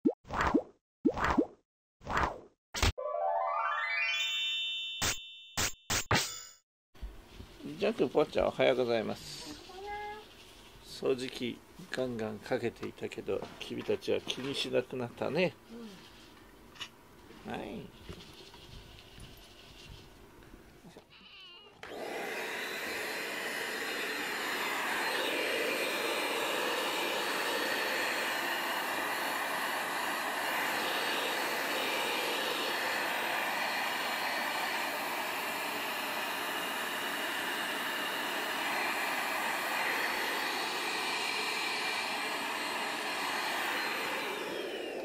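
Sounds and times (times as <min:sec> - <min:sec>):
handheld vacuum cleaner whining: 0:21.8 - 0:45.0.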